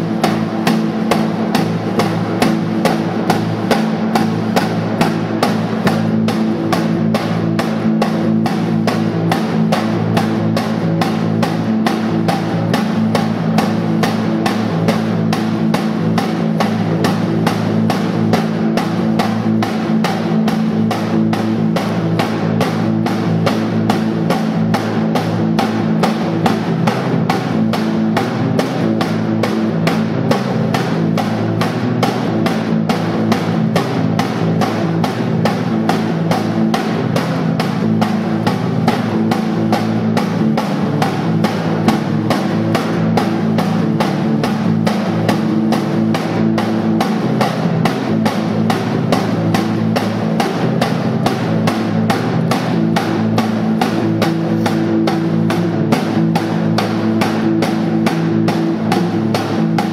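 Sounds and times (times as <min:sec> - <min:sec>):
droning low guitar: 0:00.0 - 0:59.9
rapid drumbeat: 0:00.0 - 0:59.9.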